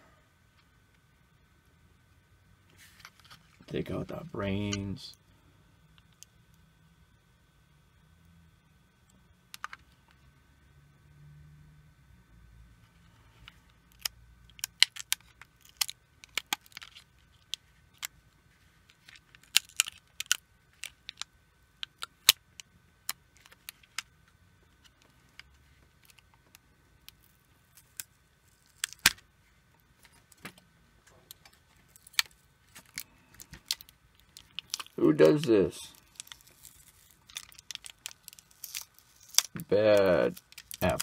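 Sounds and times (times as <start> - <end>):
foil tape crinkling as peeled: 13.9 - 18.1, 18.8 - 22.4, 27.0 - 29.2, 31.6 - 41.0.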